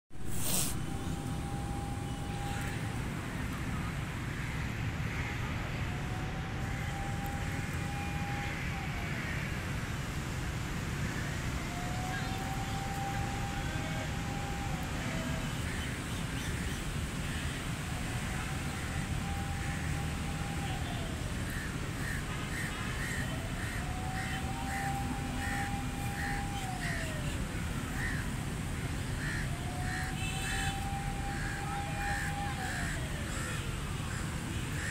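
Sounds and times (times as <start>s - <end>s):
steady whine: 0.1s - 15.9s, 17.6s - 34.9s
low outdoor rumble: 0.1s - 34.9s
faint thin whine: 0.2s - 9.5s
crow cawing: 29.2s - 34.2s.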